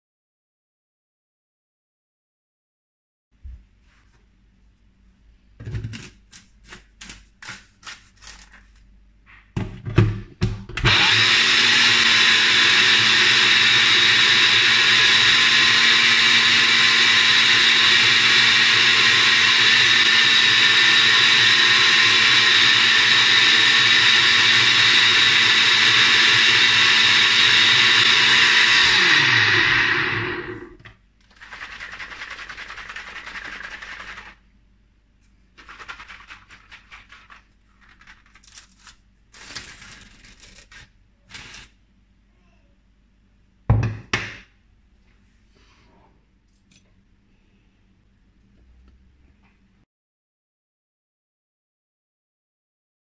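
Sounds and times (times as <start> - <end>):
blender motor running: 10.8 - 30.8.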